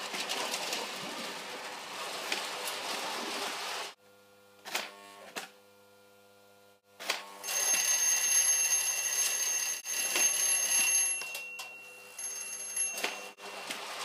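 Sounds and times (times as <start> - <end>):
electric bell ringing: 7.4 - 13.4.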